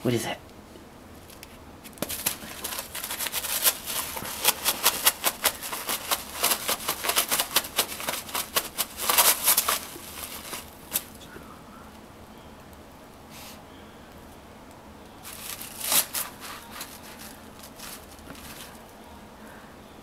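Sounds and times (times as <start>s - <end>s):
paper crinkling and tearing: 1.2s - 11.2s, 15.2s - 18.9s.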